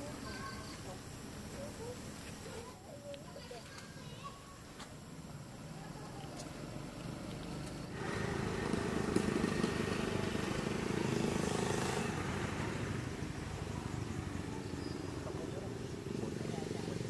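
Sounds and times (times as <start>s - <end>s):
motor vehicle passing by: 5.6s - 17.0s.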